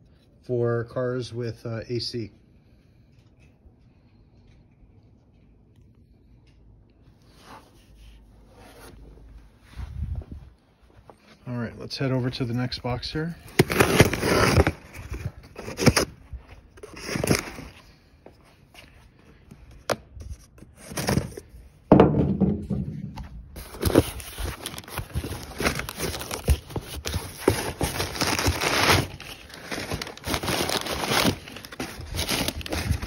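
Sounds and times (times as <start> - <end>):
packing paper crinkling: 12.8 - 16.1, 23.6 - 33.0.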